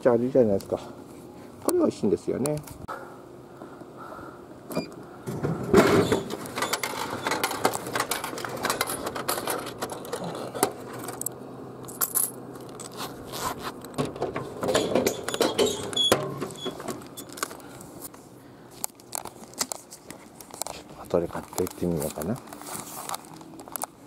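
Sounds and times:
coins jingling and clinking: 11.9 - 13.1.

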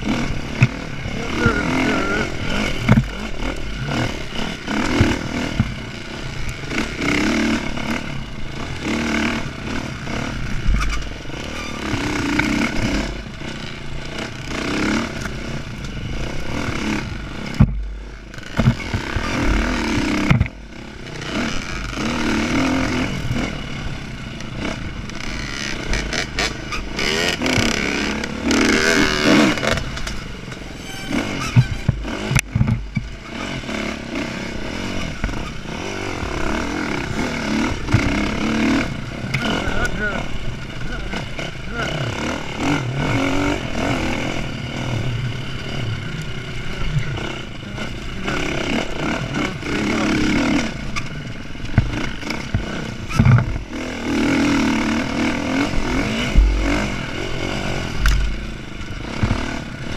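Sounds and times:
dirt bike engine revving: 0.0 - 59.9
bike knocks and rattles: 0.5 - 0.8, 2.6 - 4.0, 4.8 - 5.8, 16.8 - 20.6, 24.7 - 33.2, 37.0 - 38.4, 50.0 - 54.3, 55.5 - 59.9.

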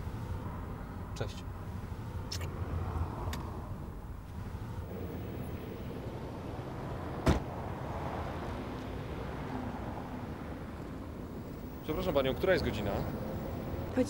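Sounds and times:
street traffic rumble: 0.0 - 14.0
car door slamming: 7.2 - 7.6.

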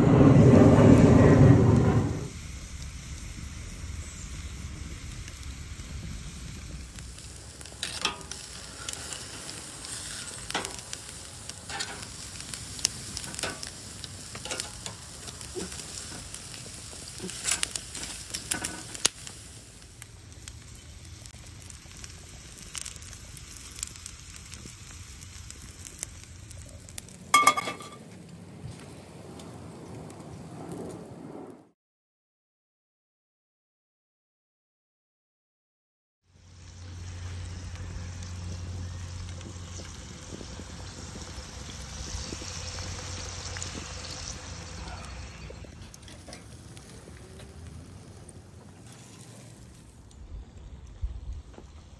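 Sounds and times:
steaks sizzling on grill: 0.1 - 28.0, 36.4 - 47.2, 48.8 - 50.1
grease pops and crackles: 0.5 - 31.0, 36.5 - 51.9
skillet clanking on grate: 7.8 - 9.2, 10.2 - 10.9, 11.7 - 12.2, 13.2 - 13.7, 14.4 - 16.2, 17.2 - 19.0, 27.3 - 28.0.

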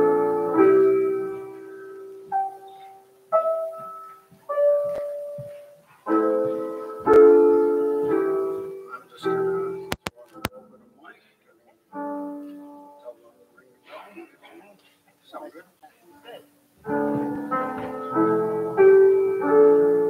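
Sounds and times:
slow piano playing: 0.0 - 10.0, 11.9 - 13.5, 16.8 - 20.0.

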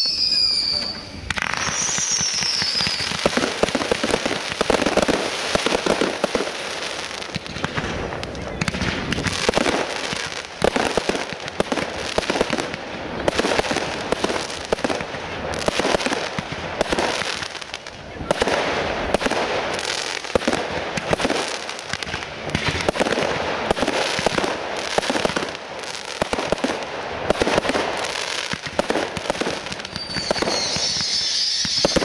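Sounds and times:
falling firework whistle: 0.0 - 4.0, 28.4 - 32.0
fireworks crackling: 0.0 - 32.0
loud fireworks reports: 0.0 - 32.0.

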